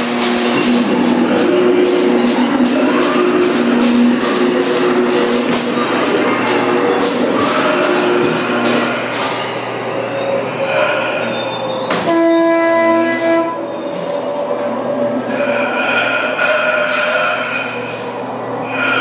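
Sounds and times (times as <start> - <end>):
loud horn blast: 0.0 - 9.3, 11.9 - 13.8
funhouse sound effects: 0.0 - 19.0
noisy background: 0.0 - 19.0.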